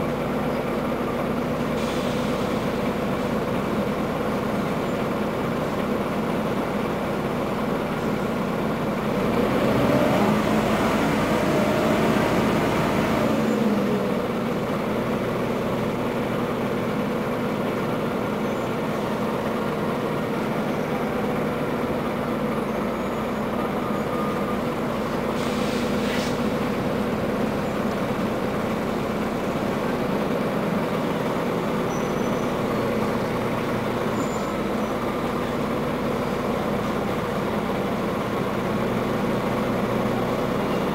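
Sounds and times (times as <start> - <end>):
bus diesel engine: 0.0 - 40.9
short air hiss: 1.8 - 2.7, 25.3 - 26.5.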